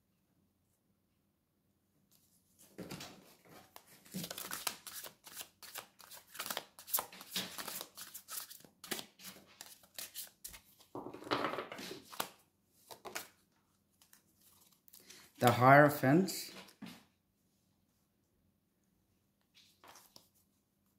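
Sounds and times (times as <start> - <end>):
cards being shuffled: 3.5 - 10.9, 11.8 - 15.7, 19.6 - 20.4.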